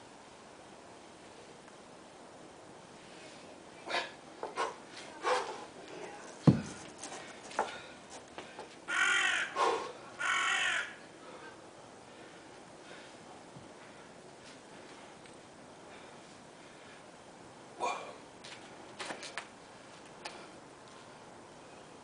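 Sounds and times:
kettlebell thud: 0:06.4 - 0:06.8
bird cawing: 0:08.9 - 0:11.0.

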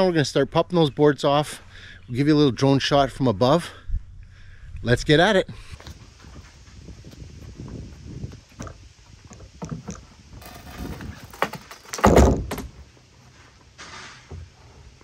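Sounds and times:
wooden knocks and creaks: 0:08.6 - 0:12.9
heavy thud: 0:10.4 - 0:12.8.

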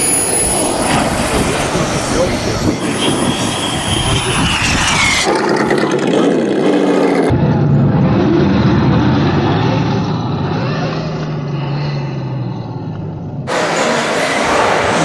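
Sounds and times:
rc buggy motor revving: 0:02.8 - 0:07.4.

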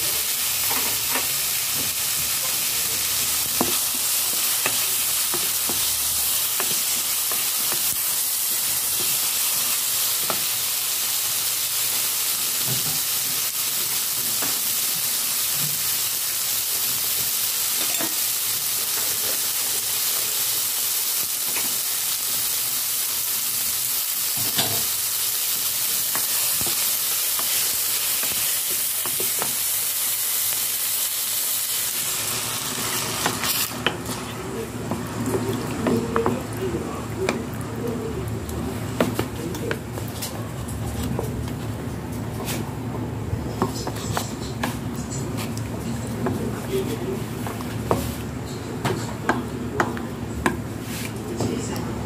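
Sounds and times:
food sizzling in hot oil: 0:00.0 - 0:38.2.

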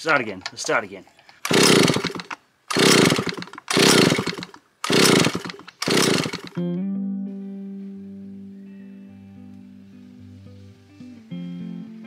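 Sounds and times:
chainsaw engine bursts: 0:01.4 - 0:06.6
guitar music: 0:06.6 - 0:12.0.

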